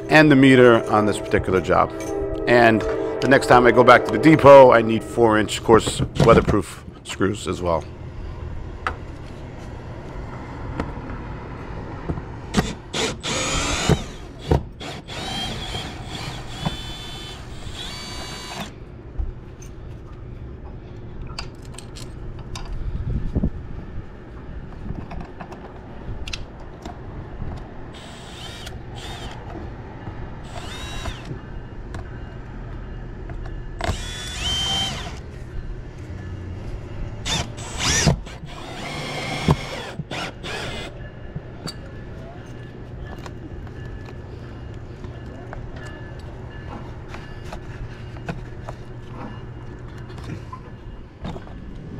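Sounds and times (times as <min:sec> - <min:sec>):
power drill driving screws: 0:12.5 - 0:18.7, 0:28.0 - 0:29.4, 0:30.5 - 0:31.3, 0:33.8 - 0:35.2, 0:37.2 - 0:40.9.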